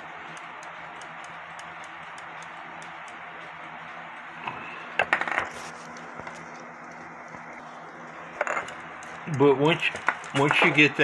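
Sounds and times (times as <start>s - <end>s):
clock ticking: 0.0s - 3.4s.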